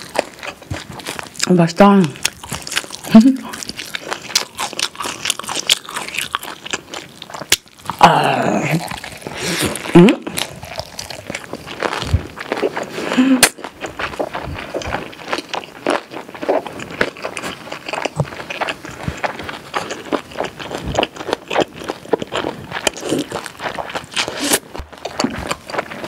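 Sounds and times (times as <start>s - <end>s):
wet chewing mouth sounds: 0.0s - 26.0s.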